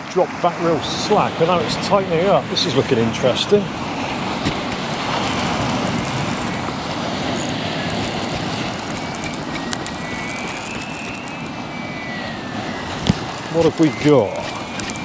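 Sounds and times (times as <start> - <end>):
surf breaking on rocks: 0.4 - 15.0
thin high whistle: 7.4 - 15.0
faint high ticks: 13.0 - 15.0.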